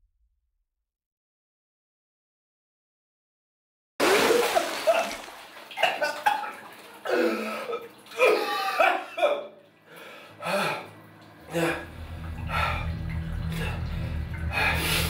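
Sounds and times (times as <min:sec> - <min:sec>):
man coughing and retching: 0:04.2 - 0:09.6.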